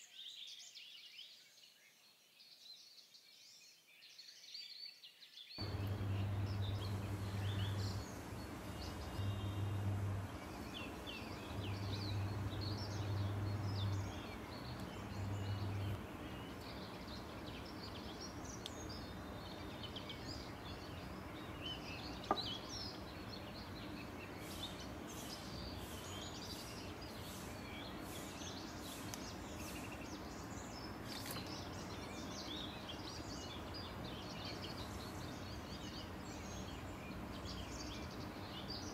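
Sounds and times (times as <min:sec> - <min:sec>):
small birds chirping: 0:05.5 - 0:38.9
low steady hum: 0:05.6 - 0:22.0.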